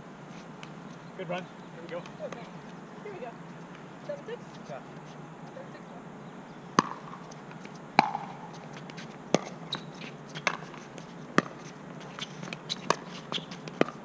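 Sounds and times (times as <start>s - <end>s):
ball bouncing on hard court: 6.8s - 14.0s.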